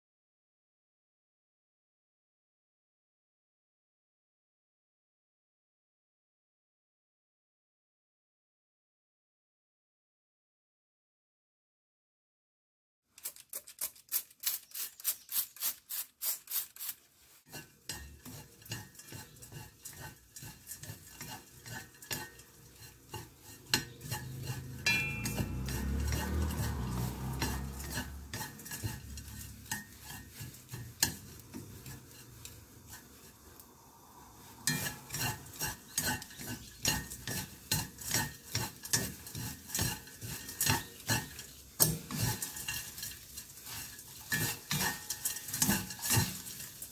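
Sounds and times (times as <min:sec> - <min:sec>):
soft frying hiss: 0:14.4 - 0:46.9
small fish rattling in a pan: 0:23.9 - 0:30.4.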